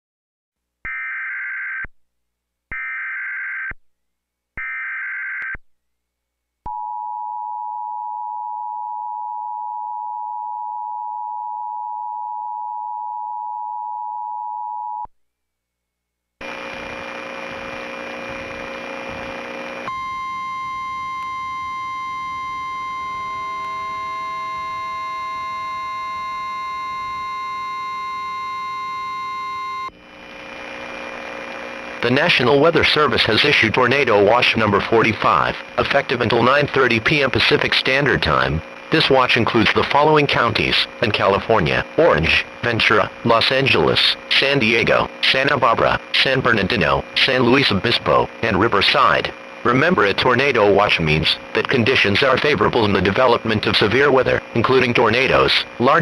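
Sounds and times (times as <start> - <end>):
harsh buzzy tone with hum: 15.6 - 56.0
steady attention tone: 16.4 - 56.0.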